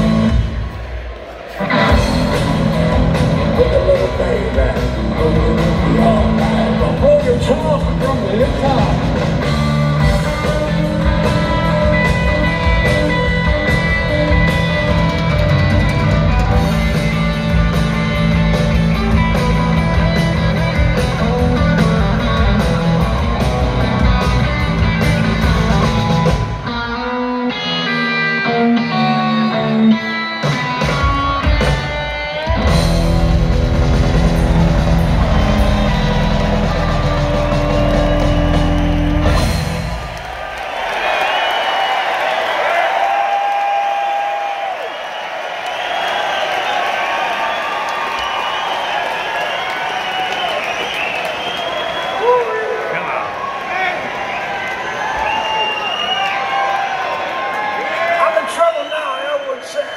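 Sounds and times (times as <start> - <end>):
live blues-rock band: 0.0 - 0.8, 1.5 - 40.2
bent electric guitar notes: 1.6 - 40.2.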